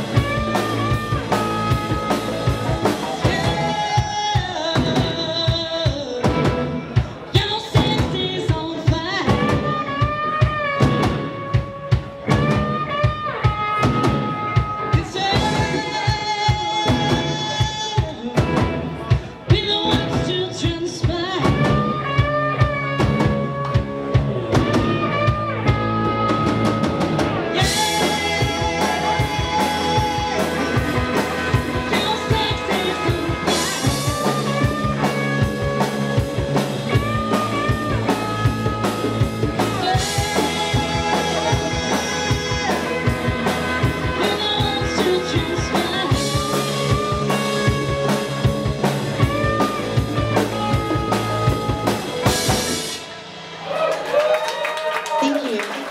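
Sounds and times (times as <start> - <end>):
live rock band playing: 0.0 - 55.9
woman singing: 2.8 - 6.6, 7.2 - 10.6, 14.7 - 18.4, 19.5 - 22.0, 27.5 - 35.8, 36.9 - 48.2.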